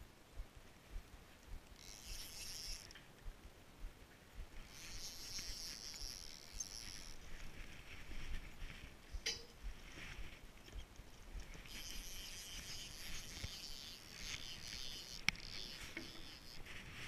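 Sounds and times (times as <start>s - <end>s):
fishing reel whirring: 1.5s - 3.0s, 4.5s - 8.5s, 11.3s - 17.0s.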